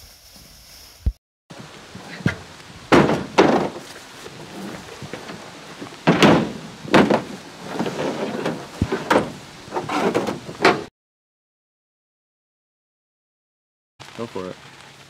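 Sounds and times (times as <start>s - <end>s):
scraping on truck bed: 1.5s - 10.9s
carcass thudding on truck bed: 1.9s - 10.9s.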